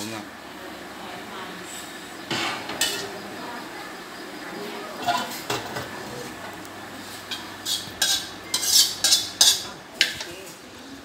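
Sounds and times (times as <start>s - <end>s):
metal ladle scraping a wok: 2.3s - 3.1s, 5.0s - 6.3s, 7.0s - 10.2s.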